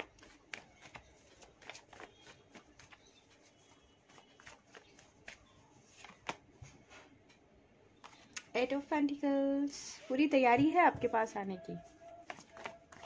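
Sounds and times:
cards being shuffled: 0.0 - 6.5, 12.2 - 13.0.

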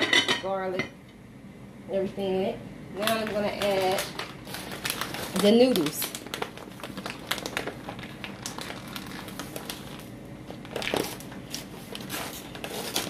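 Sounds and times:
plastic bag crinkling: 3.0 - 13.0.

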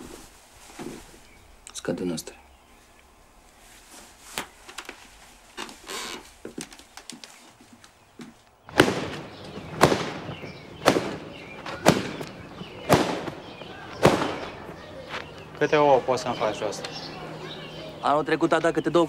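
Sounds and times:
faint rustling: 0.0 - 15.7
rug being beaten: 8.2 - 14.7.

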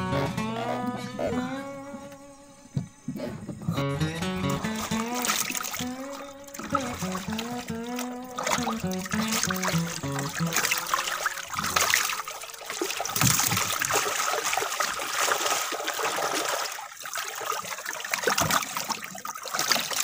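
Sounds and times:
water splashing and dripping: 4.0 - 20.0.

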